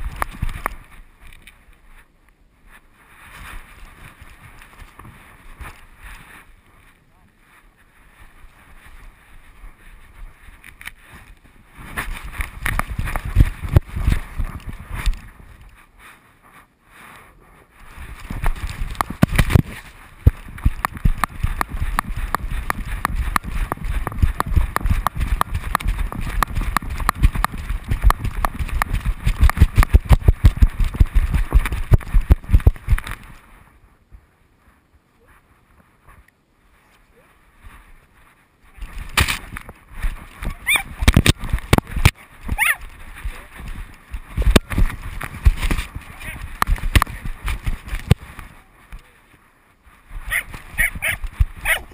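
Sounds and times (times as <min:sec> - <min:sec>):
camera housing knocking and rubbing: 0:18.4 - 0:33.2, 0:39.0 - 0:39.7, 0:40.9 - 0:42.6, 0:44.4 - 0:48.2.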